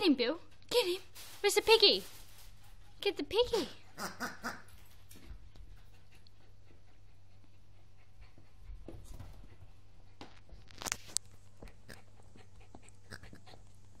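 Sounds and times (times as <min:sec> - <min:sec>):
dog chewing toy: 0:11.6 - 0:14.0.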